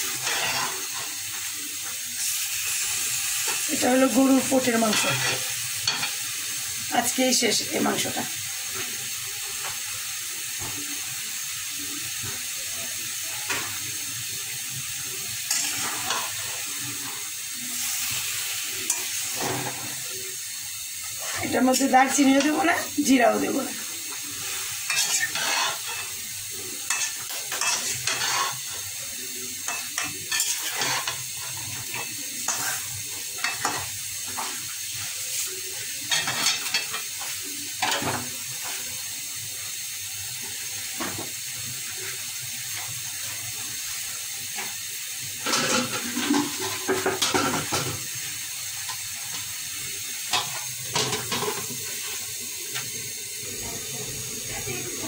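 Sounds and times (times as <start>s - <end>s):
metal spatula scraping a pan: 0.0s - 1.1s, 4.6s - 6.2s, 15.5s - 16.6s, 24.8s - 26.1s, 26.9s - 28.8s, 29.7s - 34.6s, 36.1s - 37.1s, 45.4s - 48.0s
frying sizzle: 0.0s - 55.0s.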